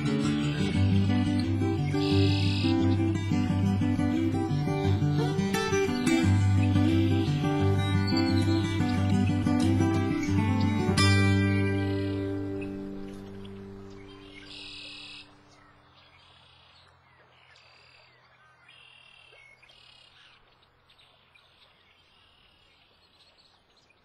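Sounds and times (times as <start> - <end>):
strummed acoustic guitar: 0.0 - 14.3
faint chirping animal calls: 0.0 - 22.9.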